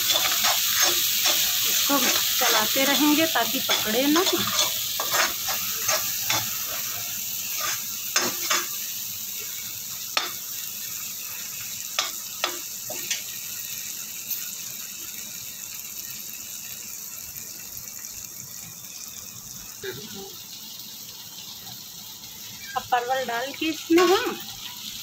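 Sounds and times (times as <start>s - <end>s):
steel spoon scraping and knocking pan: 0.0s - 8.8s
masala sizzling in oil: 0.0s - 25.0s.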